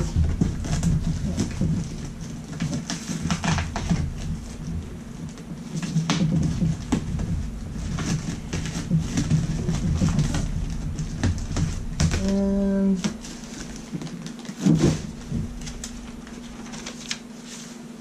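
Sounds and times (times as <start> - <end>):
packing paper rustling: 0.0 - 18.0
person humming: 12.1 - 13.4.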